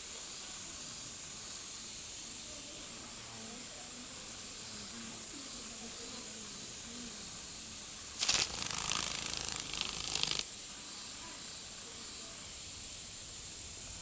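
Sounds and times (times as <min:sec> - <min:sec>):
cicadas droning: 0:00.0 - 0:14.0
cicada distress buzz: 0:07.5 - 0:11.6.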